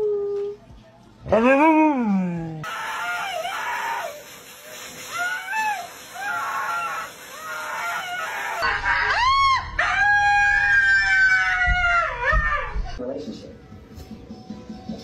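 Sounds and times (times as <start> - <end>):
blow dryer hissing: 2.6 - 8.6.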